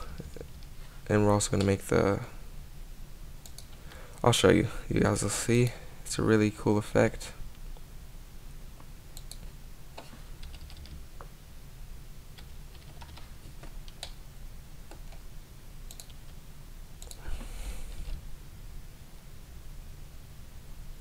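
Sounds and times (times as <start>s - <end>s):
low microphone hum: 0.0s - 21.0s
mouse clicks: 9.2s - 10.1s, 15.9s - 16.2s, 17.0s - 17.2s.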